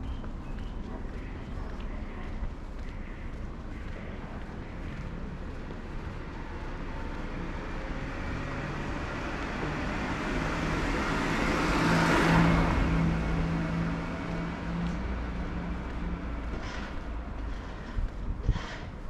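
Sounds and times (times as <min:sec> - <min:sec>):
car passing by: 0:05.6 - 0:18.8.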